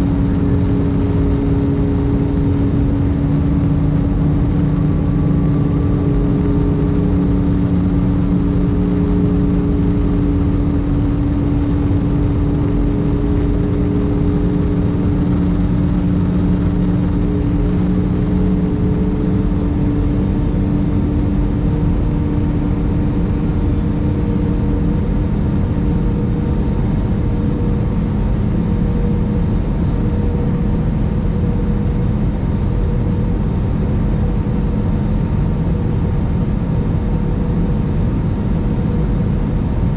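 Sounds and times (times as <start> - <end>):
droning tones: 0.0 - 39.9.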